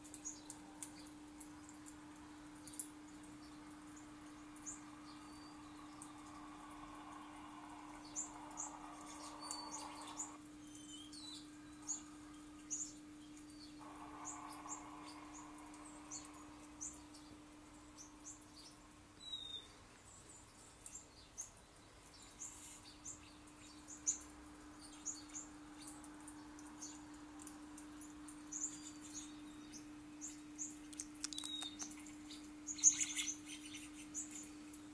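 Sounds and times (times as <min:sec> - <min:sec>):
small birds chirping: 0:00.0 - 0:34.9
low hum: 0:00.7 - 0:10.5, 0:11.1 - 0:19.2.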